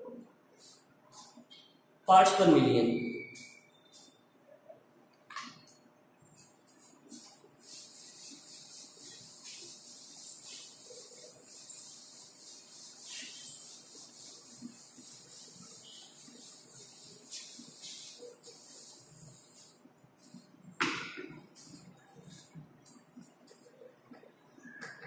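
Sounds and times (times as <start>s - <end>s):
duster rubbing chalkboard: 6.4s - 20.6s.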